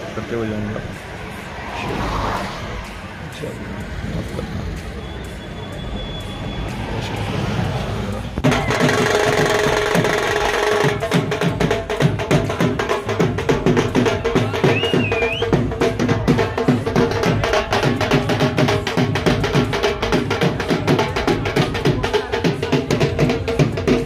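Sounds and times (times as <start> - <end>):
dhol drums fast rhythm: 8.3 - 24.0.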